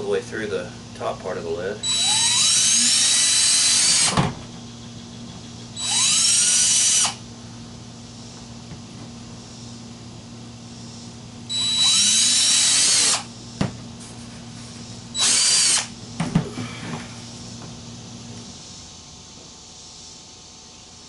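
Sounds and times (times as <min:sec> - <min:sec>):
cordless drill whining: 0:01.8 - 0:04.2, 0:05.8 - 0:07.2, 0:11.5 - 0:13.3, 0:15.1 - 0:15.9.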